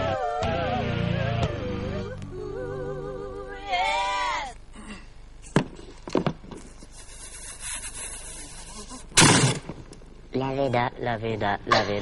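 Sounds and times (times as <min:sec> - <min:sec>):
person singing with vibrato: 0:00.0 - 0:04.6.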